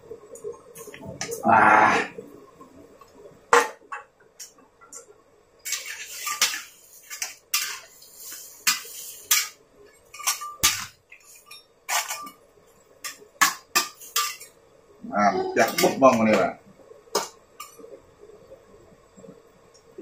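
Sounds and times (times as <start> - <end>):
metal utensil scraping a wok: 5.6 - 12.4, 13.0 - 14.5.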